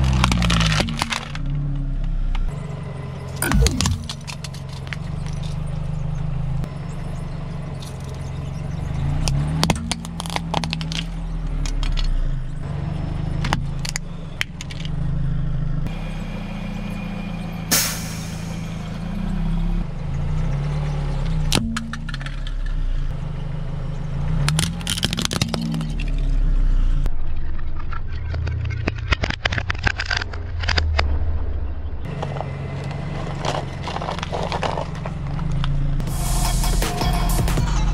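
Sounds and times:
tyre crushing small objects: 0.0 - 1.5, 9.3 - 12.2, 24.5 - 26.2, 32.1 - 35.7
car engine running low: 0.0 - 37.9.

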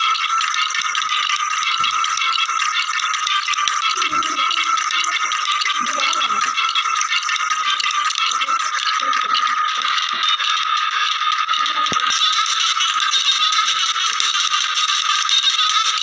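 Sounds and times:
shaker-like rattling percussion: 0.0 - 16.0
steady high tone: 3.6 - 7.1.

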